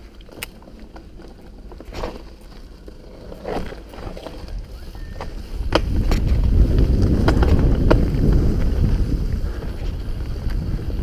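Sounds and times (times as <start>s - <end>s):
bike knocking and rattling: 0.0s - 11.0s
bike tyre rumble: 0.0s - 11.0s
wind on microphone: 4.4s - 11.0s.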